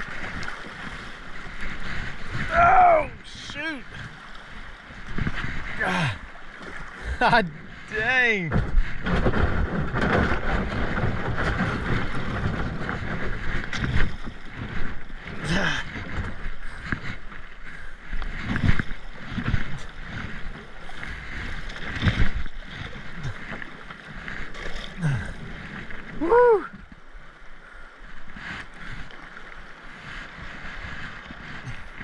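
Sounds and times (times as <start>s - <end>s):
paddle blades dipping in water: 0.0s - 32.0s
river water rushing and splashing: 0.0s - 32.0s
wind rumbling on microphone: 0.0s - 32.0s.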